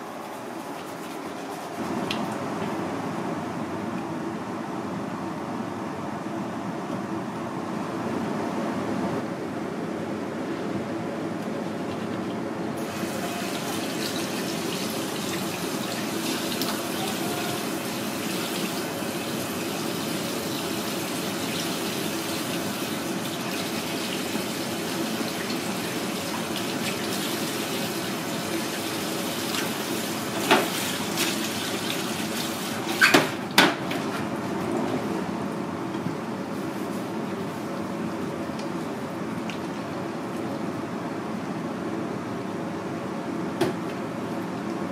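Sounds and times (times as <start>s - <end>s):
water running from spray hose: 12.8s - 33.2s.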